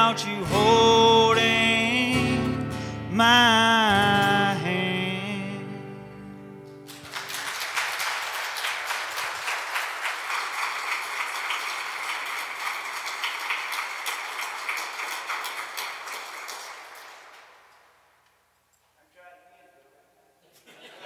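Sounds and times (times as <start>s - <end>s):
congregation applauding: 6.8s - 18.2s.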